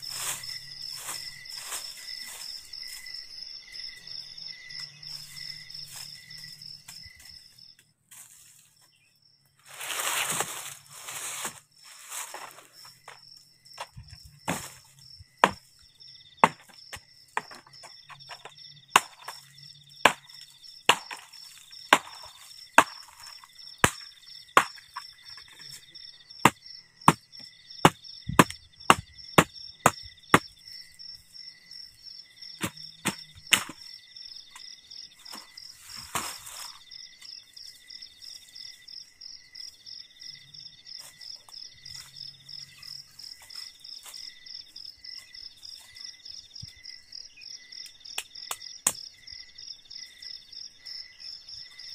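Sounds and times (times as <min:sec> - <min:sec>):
rustle: 0:00.0 - 0:03.1, 0:08.1 - 0:08.9, 0:09.6 - 0:12.8
insects trilling: 0:00.0 - 0:51.9
blade chopping wooden branch: 0:13.8 - 0:14.8, 0:15.4 - 0:15.7, 0:16.4 - 0:25.6, 0:26.4 - 0:30.5, 0:32.6 - 0:33.8.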